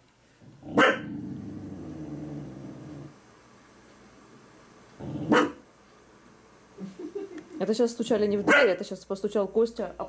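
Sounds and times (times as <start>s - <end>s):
dog growling low: 0.4s - 3.2s, 5.0s - 5.4s
dog barking: 0.7s - 1.1s, 5.2s - 5.6s, 8.4s - 8.8s.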